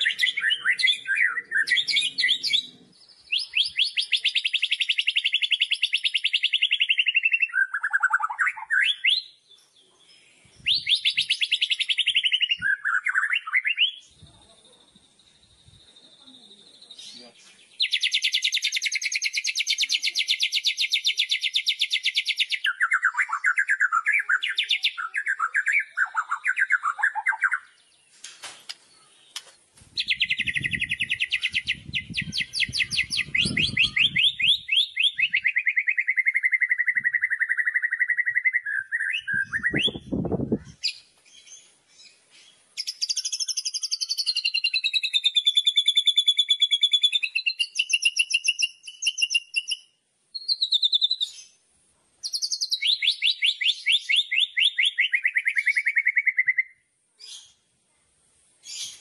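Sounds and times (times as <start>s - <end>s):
bird singing rattling trills: 30.0s - 35.4s.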